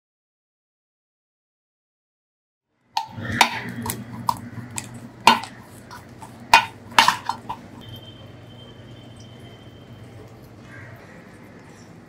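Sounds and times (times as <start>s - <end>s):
steel bowl knocking on plate: 3.0s - 7.8s.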